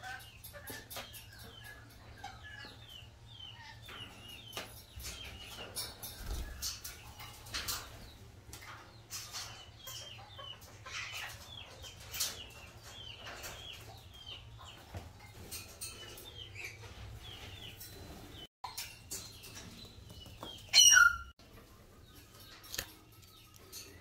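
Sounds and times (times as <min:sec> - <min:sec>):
parrots chattering and chirping: 0:20.6 - 0:21.3.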